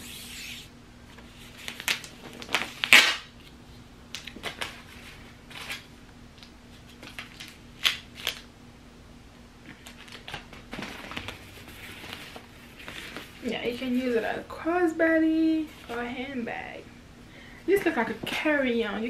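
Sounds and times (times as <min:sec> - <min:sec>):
packaging crinkling and rustling: 0:01.2 - 0:03.4, 0:04.1 - 0:08.5, 0:09.7 - 0:13.6.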